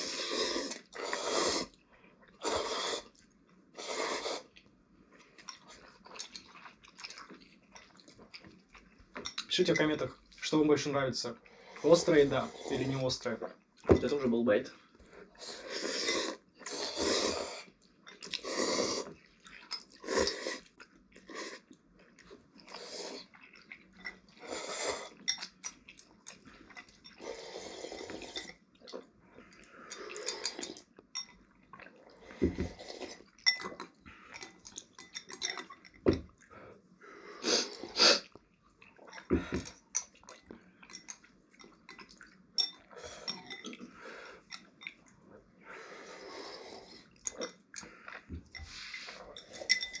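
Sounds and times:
slurping noodles: 0.0 - 3.2, 3.8 - 4.6, 11.4 - 13.0, 15.3 - 21.7, 22.6 - 23.4, 24.4 - 25.3, 27.2 - 28.5, 29.8 - 30.9, 31.8 - 34.6, 37.1 - 38.4
chewing: 4.3 - 10.5, 15.0 - 36.6, 37.6 - 46.1, 46.7 - 50.0.

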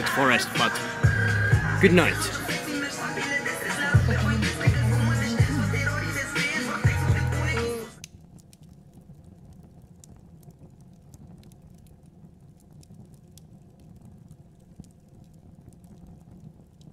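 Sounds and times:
hip-hop music: 0.0 - 8.0
campfire crackling: 0.0 - 16.9.

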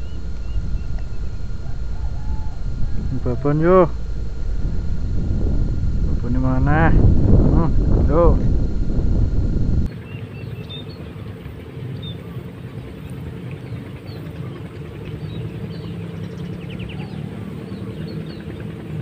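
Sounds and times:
faint high chirps: 0.0 - 6.4
low mechanical hum: 0.0 - 19.0.

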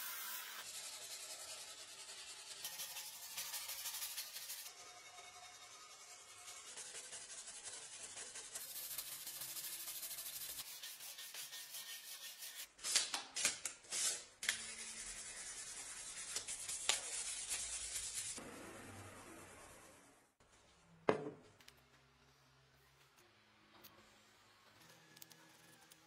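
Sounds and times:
sanding wood by hand: 0.0 - 4.7, 6.1 - 12.7.

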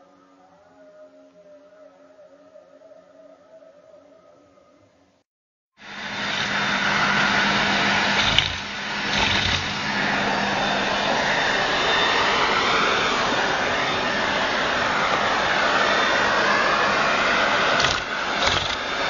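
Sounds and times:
vacuum cleaner running: 5.8 - 19.0.

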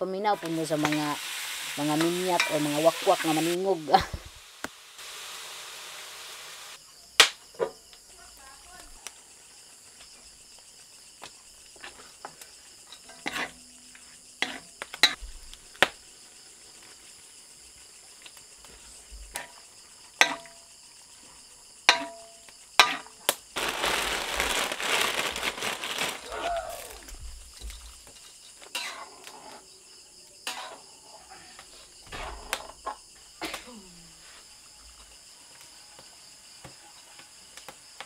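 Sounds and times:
crickets and insects trilling: 0.0 - 38.0
food sizzling in wok: 0.1 - 6.8, 9.3 - 32.9
rustling hiss: 0.3 - 6.8, 8.6 - 21.8, 23.3 - 29.8
metal utensils clinking on wok: 2.0 - 3.4, 20.2 - 20.5, 21.9 - 23.1.

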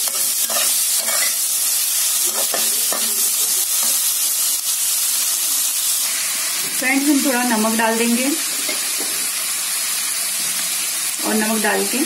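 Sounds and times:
steel spoon scraping pan: 0.0 - 1.4
vegetables sizzling in oil: 0.0 - 12.0.

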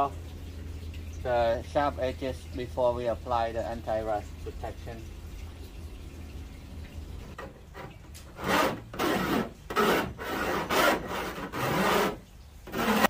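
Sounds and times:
hand file rasping on sheet metal: 7.7 - 13.0.

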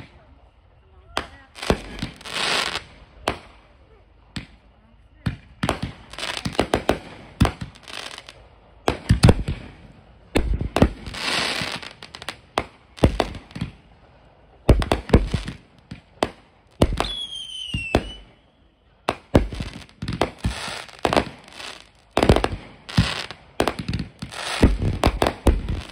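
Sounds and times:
fireworks crackling: 0.0 - 25.9
fireworks bangs: 1.1 - 3.7, 4.3 - 13.8, 14.6 - 18.4, 19.0 - 25.9
falling firework whistle: 16.9 - 18.7.

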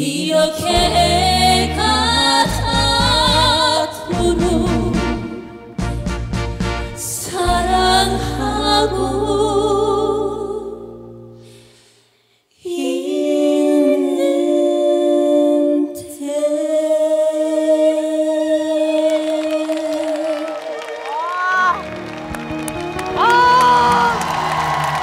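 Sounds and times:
unaccompanied vocal harmony: 0.0 - 5.6, 7.0 - 11.0, 12.6 - 21.1
backing band playing: 0.7 - 8.4, 21.7 - 25.0.

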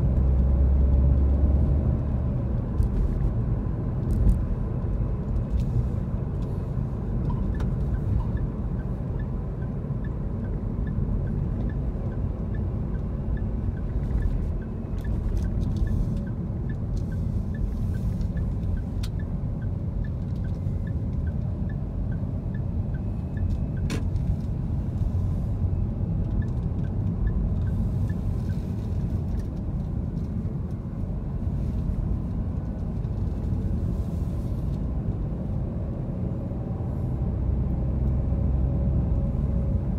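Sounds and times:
car engine and road noise: 0.0 - 39.9.

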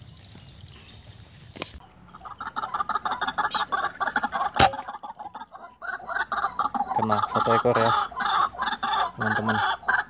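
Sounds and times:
waterhens clucking: 1.8 - 10.0
air rifle shot: 4.6 - 4.9.

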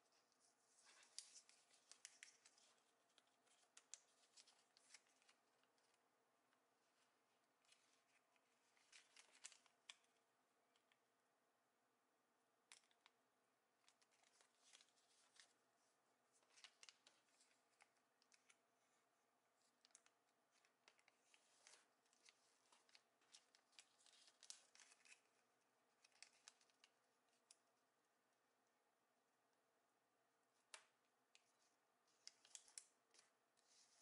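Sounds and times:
paper rustling being folded: 0.0 - 6.1, 6.8 - 10.1, 13.8 - 18.7, 19.5 - 27.6, 30.6 - 34.0
crisp ticks of paper creasing: 0.4 - 6.0, 7.6 - 10.0, 16.3 - 18.6, 19.6 - 25.4, 26.0 - 27.6, 30.7 - 34.0.

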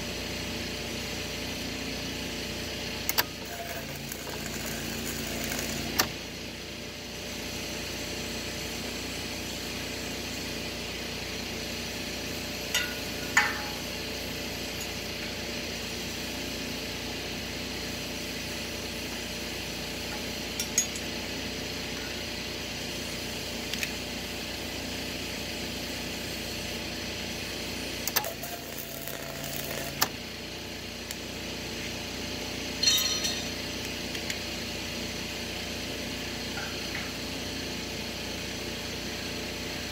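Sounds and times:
steady hum: 3.1 - 6.4, 28.0 - 31.4
welding arc buzzing: 3.1 - 6.4, 27.8 - 30.4.

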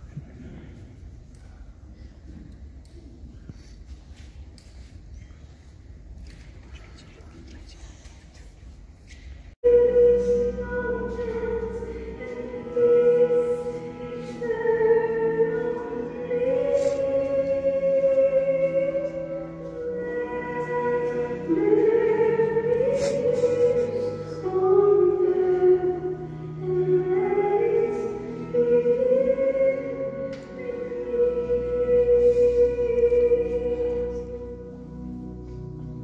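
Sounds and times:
slow sacred singing: 9.6 - 36.0.

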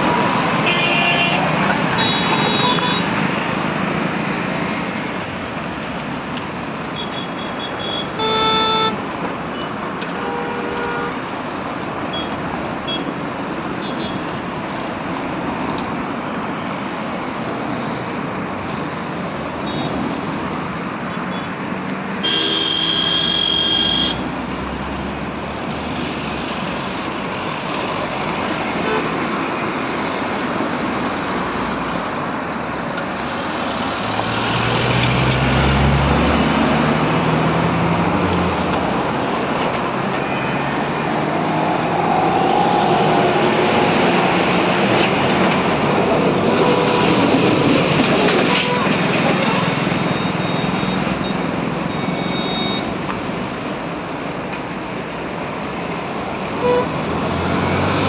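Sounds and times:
highway traffic passing: 0.0 - 58.0
vehicle horns honking: 0.6 - 3.1, 7.0 - 9.0, 9.6 - 11.2, 22.2 - 24.2, 48.4 - 53.0, 56.6 - 57.0.

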